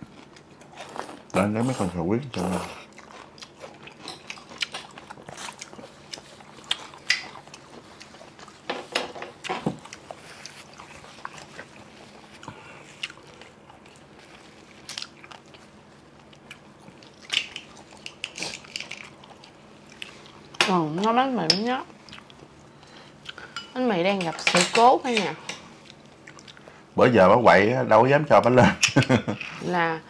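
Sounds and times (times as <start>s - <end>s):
chewing and biting food: 0.0s - 8.7s, 9.3s - 20.6s, 21.9s - 22.6s.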